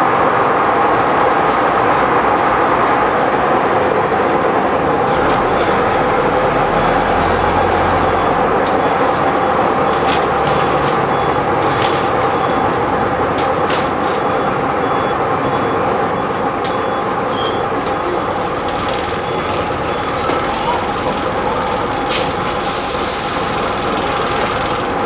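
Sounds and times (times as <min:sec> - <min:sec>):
bus body rattling: 0:00.0 - 0:25.0
bus engine droning: 0:00.0 - 0:25.0
compressed air hiss: 0:22.1 - 0:23.6.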